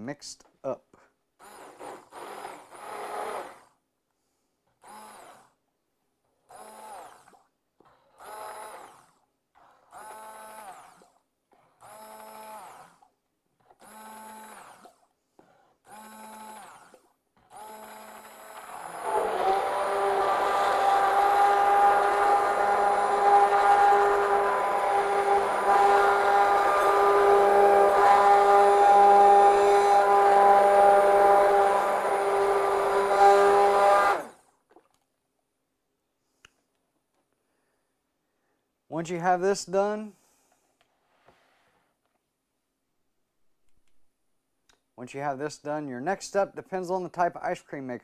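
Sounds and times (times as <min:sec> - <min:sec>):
immersion blender motor whirring: 0:01.4 - 0:03.8, 0:04.8 - 0:05.6, 0:06.5 - 0:34.4.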